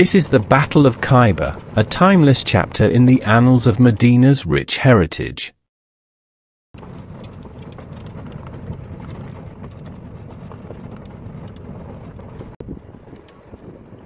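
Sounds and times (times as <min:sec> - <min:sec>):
tyres rumbling on gravel road: 0:00.0 - 0:04.3, 0:06.8 - 0:13.9
small stones crackling: 0:06.8 - 0:12.6.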